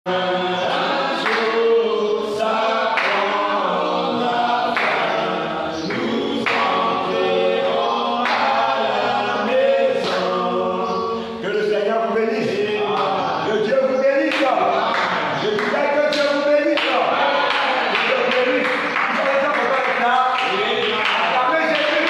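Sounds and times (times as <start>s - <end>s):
man singing into microphone: 9.2s - 14.8s.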